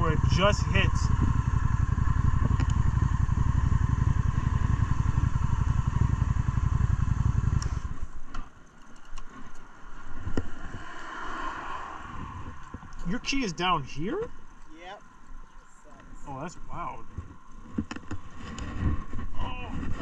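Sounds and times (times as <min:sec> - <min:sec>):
motorcycle engine running: 0:00.0 - 0:10.8.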